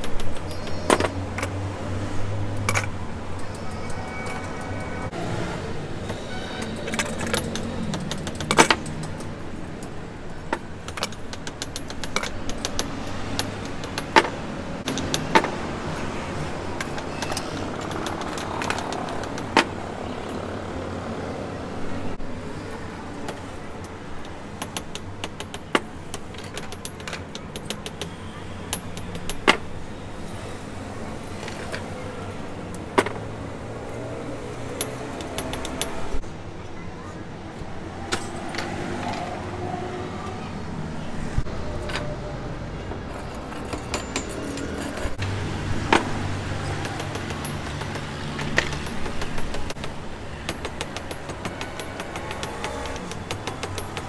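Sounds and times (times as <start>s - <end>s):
metal hand tools tapping: 6.1s - 16.0s, 16.6s - 19.8s, 23.3s - 29.8s, 34.6s - 36.2s, 43.0s - 54.0s.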